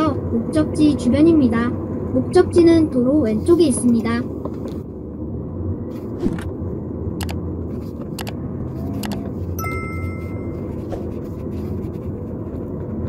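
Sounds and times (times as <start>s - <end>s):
car engine and tyres rumbling: 0.0s - 13.0s
short faint tone: 9.6s - 10.9s.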